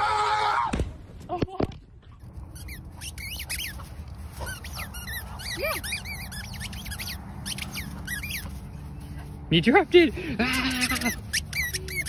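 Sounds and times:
squeaky toy ball squeaking: 2.5 - 8.6, 10.5 - 12.0.

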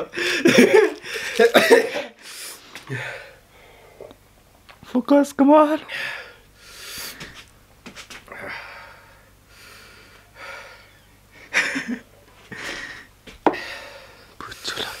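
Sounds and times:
man breathing heavily: 0.0 - 4.1, 5.8 - 7.5, 8.3 - 11.7, 12.4 - 15.0.

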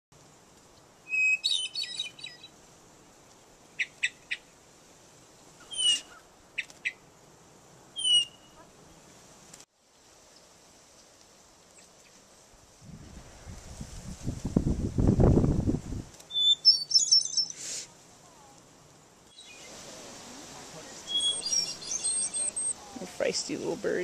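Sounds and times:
songbird chip notes: 1.0 - 2.5, 16.3 - 17.6, 20.6 - 24.0
songbird chattering calls: 1.1 - 2.5, 5.6 - 7.0, 8.0 - 8.7, 16.3 - 17.8, 19.3 - 19.8, 20.9 - 23.1
high downward-sliding bird notes: 16.3 - 17.6, 20.9 - 23.0.

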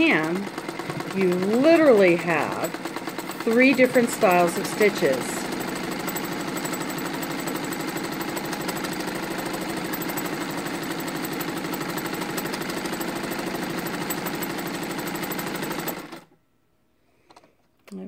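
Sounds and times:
sewing machine chattering: 0.0 - 16.3.

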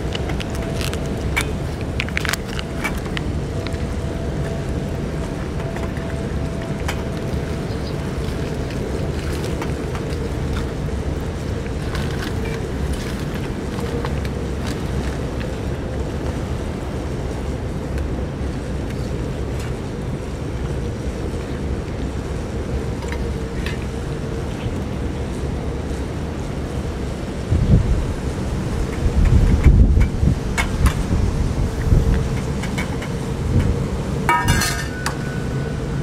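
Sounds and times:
strong wind buffeting microphone: 0.0 - 36.0.

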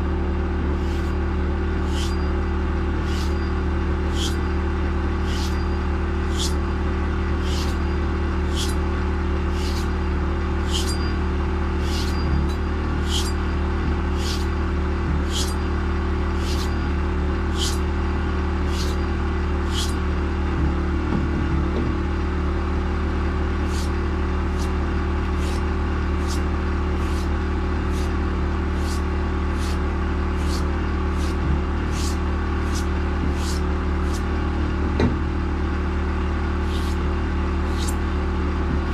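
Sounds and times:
belt sharpener motor hum: 0.6 - 20.7, 23.6 - 34.4, 36.6 - 38.1
knife hissing across sanding belt: 0.8 - 1.2, 1.8 - 2.2, 3.0 - 3.4, 4.1 - 4.4, 5.2 - 5.6, 6.3 - 6.6, 7.4 - 7.8, 8.4 - 8.8, 9.5 - 9.9, 10.6 - 11.0, 11.8 - 12.3, 13.0 - 13.4, 14.1 - 14.5, 15.2 - 15.6, 16.4 - 16.7, 17.5 - 17.8, 18.7 - 19.0, 19.6 - 20.0, 23.6 - 23.9, 24.5 - 24.7, 25.4 - 25.6, 26.2 - 26.4, 27.0 - 27.3, 27.9 - 28.1, 28.7 - 29.8, 30.4 - 34.2, 36.6 - 37.0, 37.6 - 38.0.

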